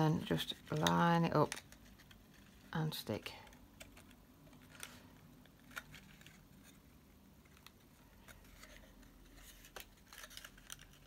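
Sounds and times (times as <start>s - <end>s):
paper rustling: 3.4s - 11.0s.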